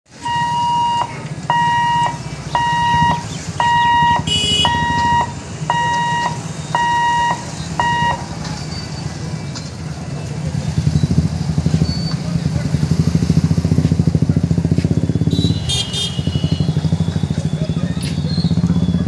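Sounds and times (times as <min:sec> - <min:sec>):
motorcycle engines idling: 0:00.1 - 0:19.0
level crossing warning buzzer beeping: 0:00.2 - 0:08.3.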